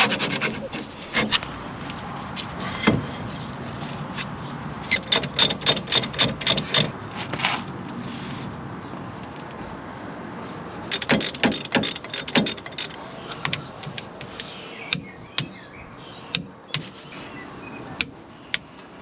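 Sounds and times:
metal tools clicking and clinking: 4.9s - 7.0s, 10.9s - 14.5s.

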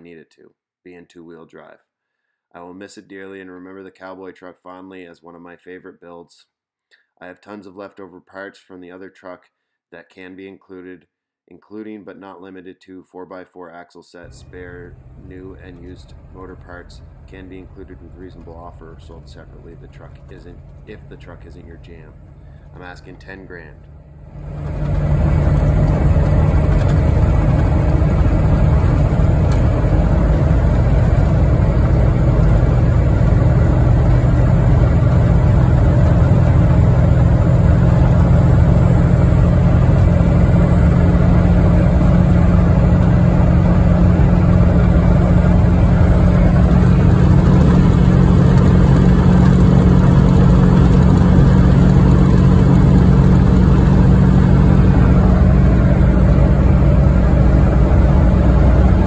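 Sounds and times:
diesel truck engine drone: 14.3s - 59.0s
road noise: 14.3s - 59.0s.

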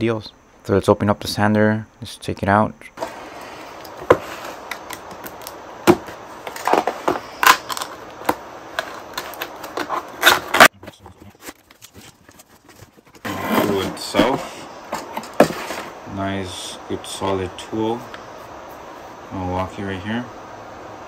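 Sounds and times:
cardboard packaging rustling: 3.0s - 16.0s.

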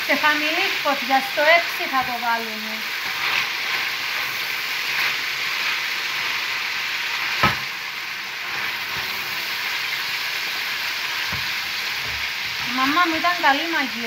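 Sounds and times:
beans sizzling in oil: 0.0s - 14.0s
sharp knock: 7.4s - 7.6s.

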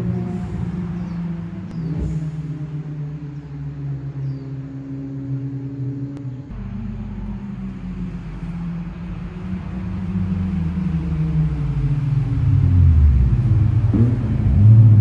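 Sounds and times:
car engine revving hard: 9.6s - 15.0s.

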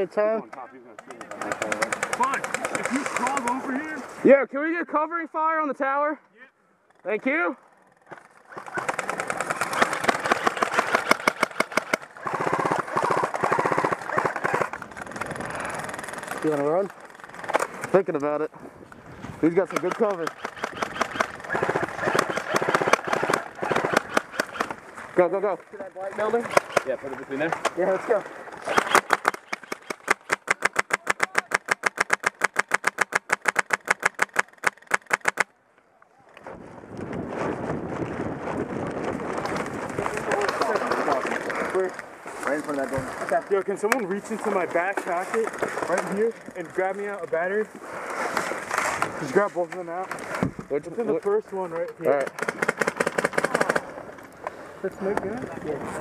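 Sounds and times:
airsoft guns firing full-auto: 1.0s - 3.6s, 8.2s - 17.6s, 19.6s - 24.8s, 26.2s - 27.5s, 28.6s - 35.4s, 52.2s - 54.0s.

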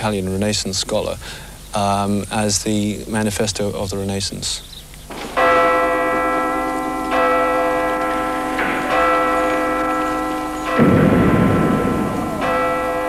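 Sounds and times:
bells ringing: 5.1s - 13.0s.

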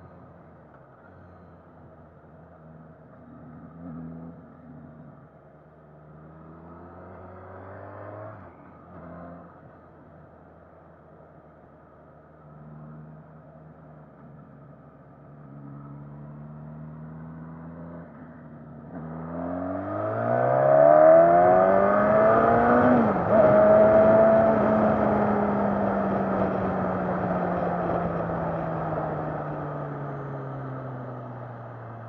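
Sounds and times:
motorcycle engine accelerating: 15.8s - 32.0s.

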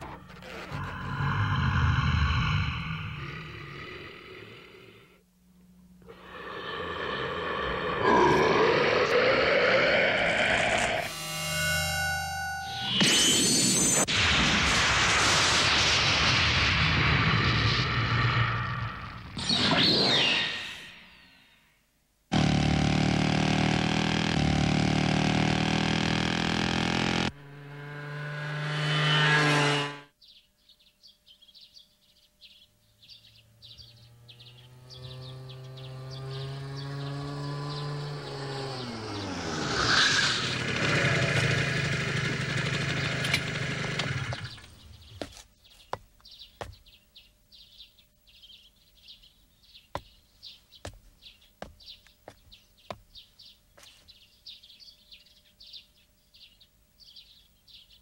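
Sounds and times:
motorcycle engine: 22.3s - 30.1s, 33.3s - 45.4s
birds chirping softly: 30.2s - 39.4s, 44.3s - 58.0s.

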